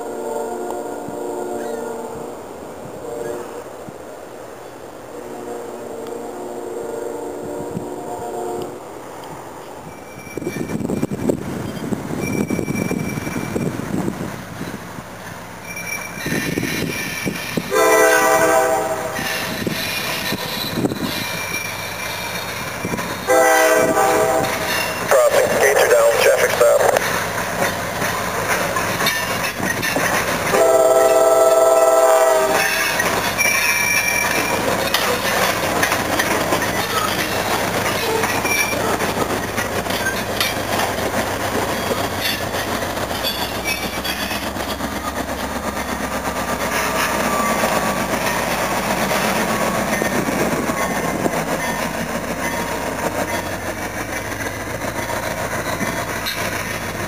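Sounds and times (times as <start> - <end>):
locomotive horn blast: 0.0 - 2.3, 5.1 - 8.8, 17.7 - 19.4, 23.3 - 25.6, 30.5 - 33.0
freight train rolling past: 0.0 - 57.0
wheels clacking over rail joints: 9.2 - 57.0.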